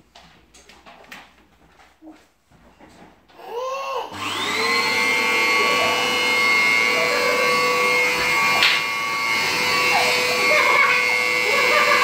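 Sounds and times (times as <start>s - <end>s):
vacuum cleaner motor whining: 3.4s - 12.0s.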